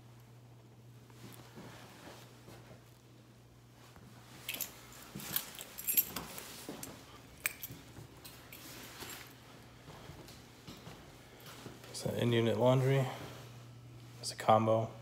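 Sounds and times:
faint steady hum: 0.0s - 15.0s
keys jingling: 4.4s - 9.4s.

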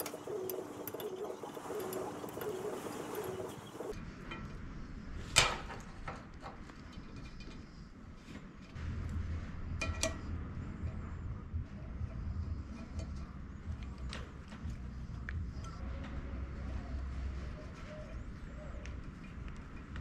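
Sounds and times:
low hum: 6.7s - 20.0s.

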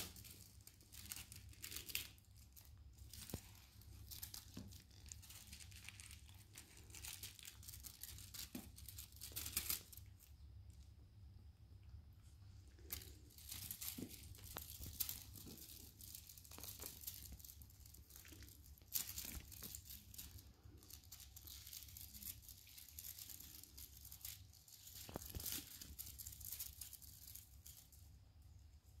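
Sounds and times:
low steady hum: 0.0s - 29.0s
kittens scratching on tiled floor: 12.7s - 28.0s.

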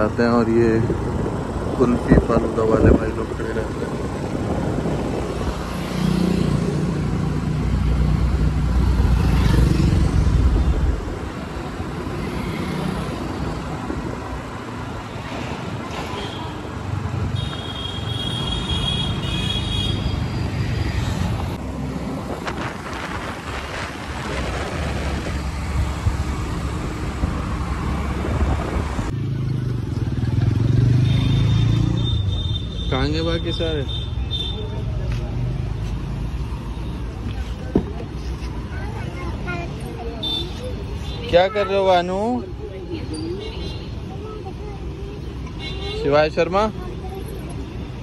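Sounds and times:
passing road traffic: 0.0s - 48.0s
wind buffeting microphone: 0.8s - 5.8s, 21.3s - 29.1s.

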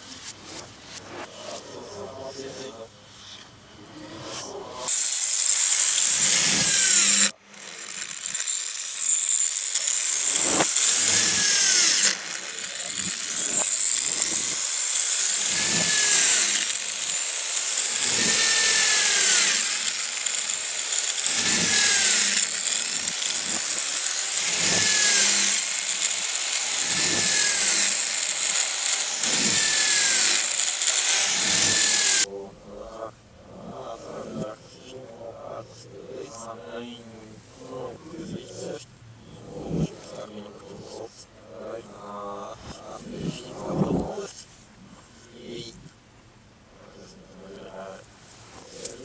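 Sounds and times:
power drill boring through plywood: 4.9s - 32.3s.

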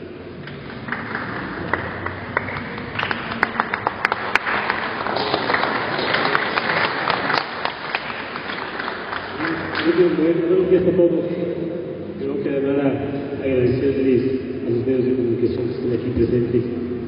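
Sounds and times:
people clapping: 0.4s - 10.3s.

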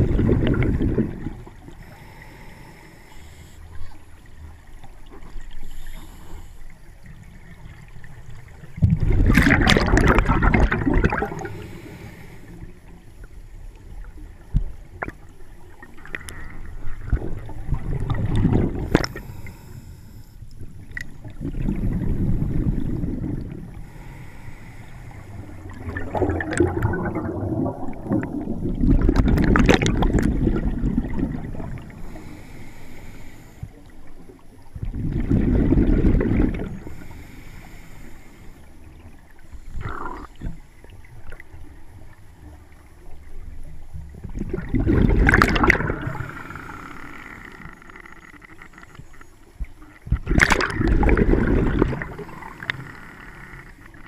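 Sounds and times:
exhaled air bubbling underwater: 0.0s - 54.0s
regulator inhalation hiss: 1.8s - 3.8s, 5.6s - 6.8s, 11.4s - 12.7s, 23.8s - 25.6s, 32.0s - 33.8s, 36.8s - 38.8s.

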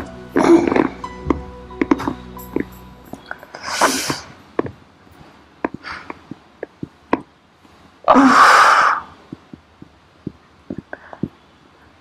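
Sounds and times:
soft breath: 5.2s - 6.2s, 10.8s - 12.0s.

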